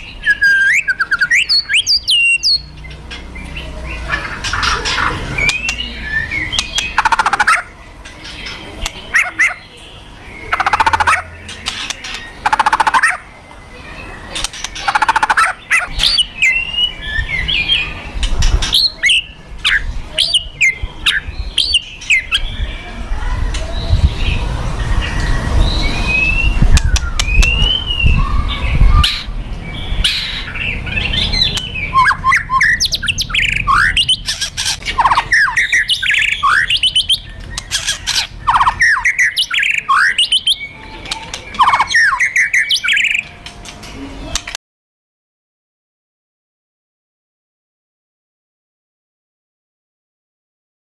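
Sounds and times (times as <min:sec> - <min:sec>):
bird whistled calls: 0:00.0 - 0:02.7, 0:25.0 - 0:29.3, 0:31.1 - 0:43.3.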